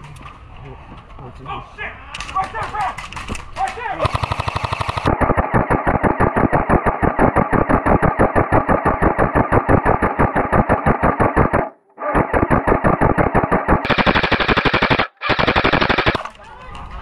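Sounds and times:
airsoft rifle firing full auto: 0:03.9 - 0:16.3.

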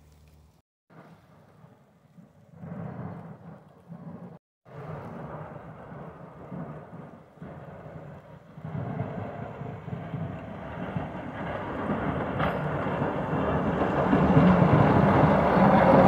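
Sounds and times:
snowplow truck engine and plow: 0:10.7 - 0:16.0.

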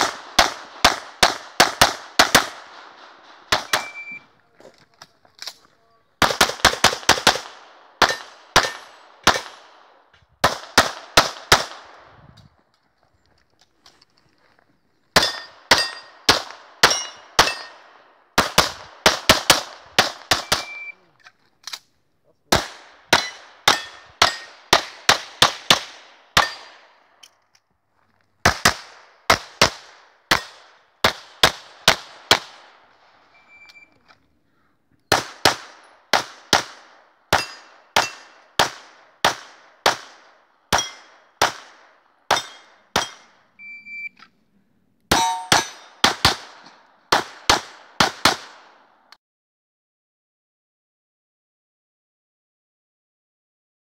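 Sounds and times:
handgun shots echoing: 0:00.0 - 0:04.2, 0:06.2 - 0:09.7, 0:15.2 - 0:20.9, 0:22.5 - 0:26.9, 0:35.1 - 0:43.4, 0:45.1 - 0:48.8.

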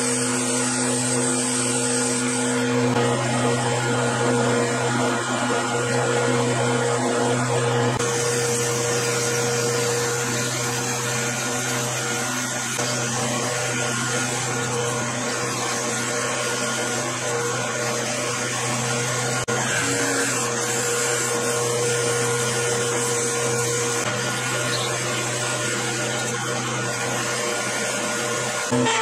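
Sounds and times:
metal lathe motor hum: 0:00.0 - 0:29.0
drill boring into metal: 0:08.0 - 0:29.0.

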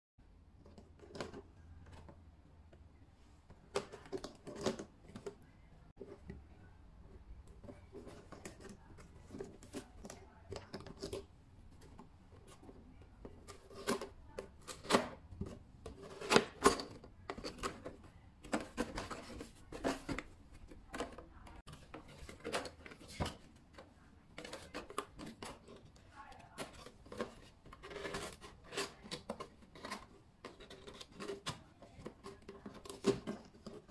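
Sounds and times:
cardboard rubbing and scraping: 0:13.4 - 0:23.6, 0:24.4 - 0:33.9
cardboard box being handled: 0:13.5 - 0:33.9.

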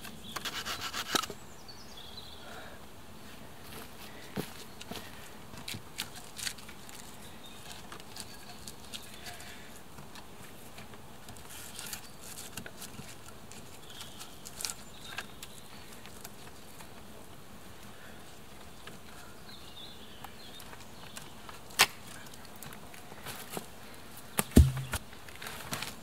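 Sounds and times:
wooden logs knocking: 0:24.4 - 0:25.0.

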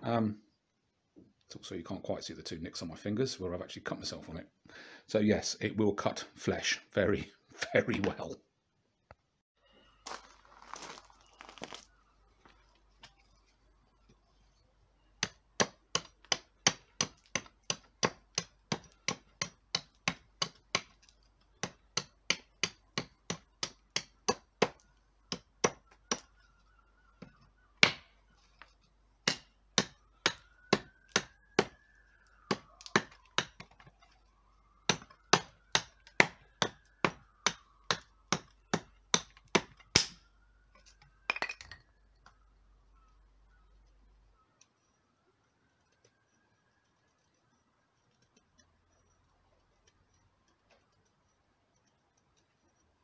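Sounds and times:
knife chopping wood: 0:15.2 - 0:26.3, 0:27.2 - 0:28.1, 0:29.2 - 0:31.8, 0:32.4 - 0:33.9, 0:34.9 - 0:40.2.

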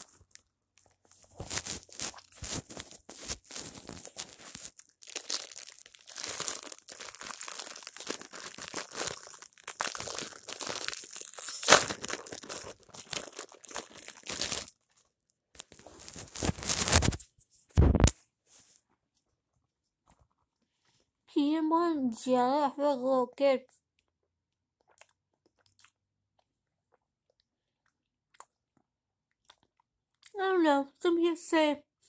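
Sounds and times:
plastic wrapper crinkling: 0:00.0 - 0:18.1.

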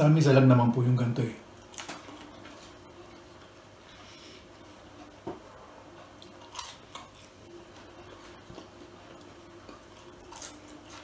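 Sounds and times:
chewing crunchy fries: 0:06.0 - 0:11.0.

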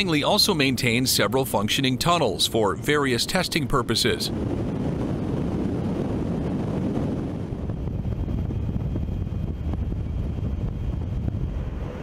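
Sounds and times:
wind tunnel rushing air: 0:02.2 - 0:12.0.

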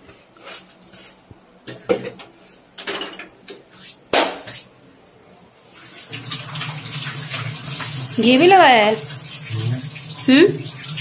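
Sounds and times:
kitchen utensils clattering: 0:02.8 - 0:03.4.

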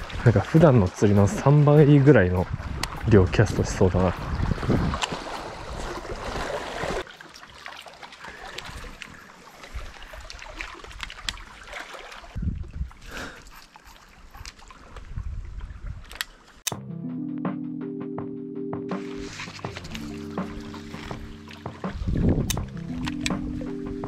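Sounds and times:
water lapping on rocky shore: 0:00.0 - 0:16.6, 0:19.0 - 0:24.0
wind noise: 0:02.4 - 0:06.5, 0:12.4 - 0:13.6, 0:14.3 - 0:16.2, 0:20.9 - 0:23.6
footsteps: 0:18.9 - 0:22.3.

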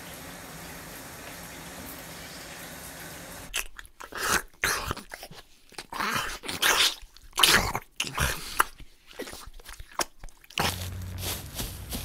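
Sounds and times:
shower running: 0:00.0 - 0:03.5
crunching and chewing: 0:03.5 - 0:11.6.

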